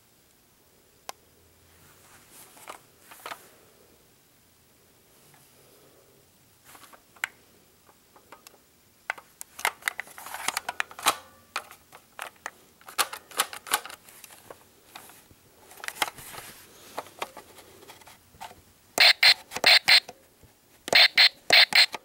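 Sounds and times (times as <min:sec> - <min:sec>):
plastic toy pistol clicks and rattles: 0:09.1 - 0:14.0.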